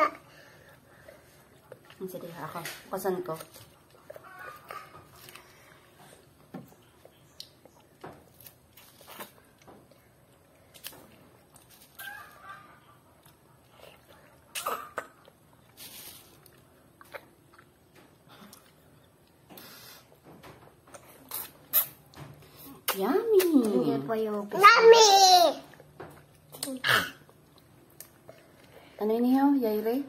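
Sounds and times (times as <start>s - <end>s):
mouth smacks: 13.9s - 15.4s, 20.9s - 22.1s.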